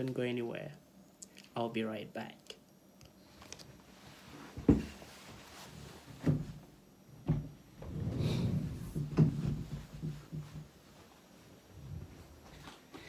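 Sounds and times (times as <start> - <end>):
rustling: 3.3 - 6.4
dull knocks and bumps: 4.6 - 5.0, 6.1 - 7.9, 8.9 - 10.8.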